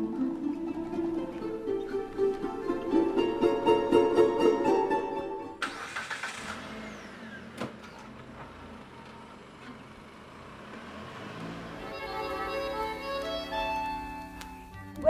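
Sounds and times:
plucked-string music: 0.0s - 5.6s, 11.7s - 15.0s
car engine starting and idling: 0.0s - 15.0s.

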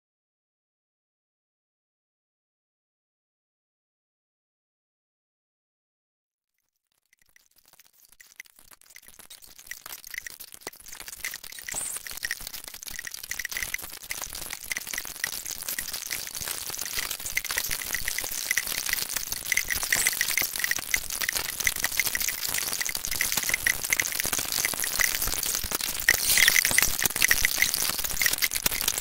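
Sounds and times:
electroacoustic flute music: 26.1s - 27.6s.

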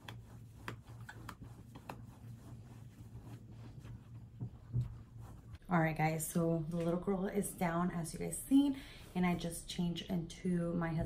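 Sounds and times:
low steady hum: 0.0s - 11.0s
soft bumps: 2.8s - 5.6s.

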